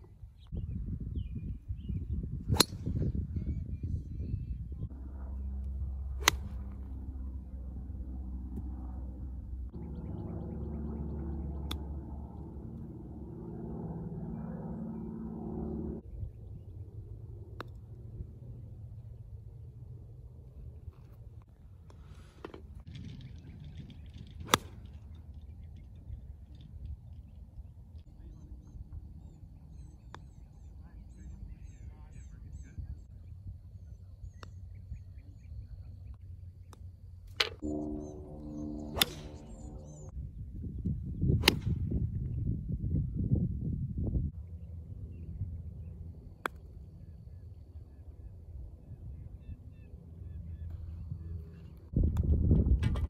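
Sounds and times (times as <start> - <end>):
low steady rumble: 0.0 - 53.0
golf club striking ball: 2.5 - 3.1, 6.2 - 6.8, 37.4 - 40.1
small birds chirping: 27.1 - 36.9.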